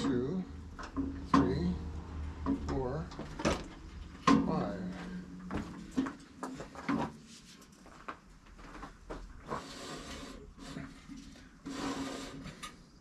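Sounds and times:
rough rubbing grinding: 9.4 - 13.0.

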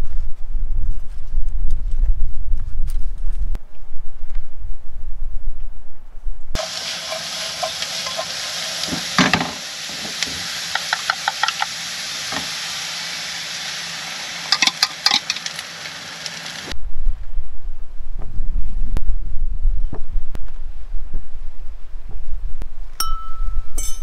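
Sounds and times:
food sizzling in a pan: 6.6 - 16.8.

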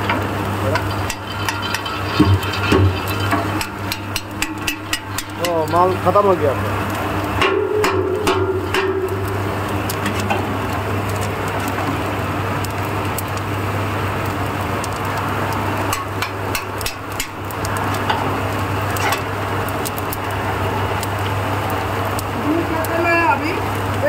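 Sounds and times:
roasting machine humming: 0.0 - 24.0
peanuts rattling on metal sieve: 0.6 - 6.6.

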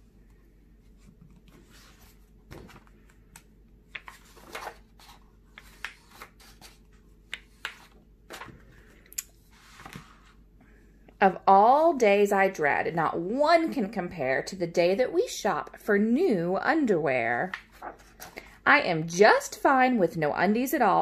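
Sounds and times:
book pages turning: 0.9 - 10.4, 17.5 - 18.5.

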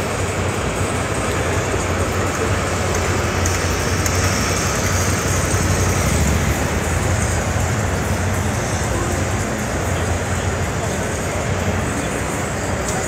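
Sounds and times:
din of busy hall: 0.0 - 13.0
motorcycle riding slowly past: 0.0 - 13.0.

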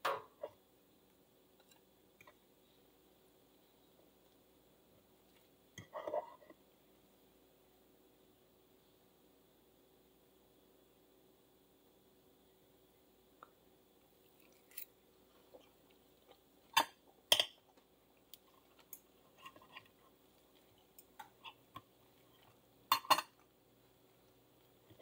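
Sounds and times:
cutlery clinking on a plate: 22.9 - 23.4.

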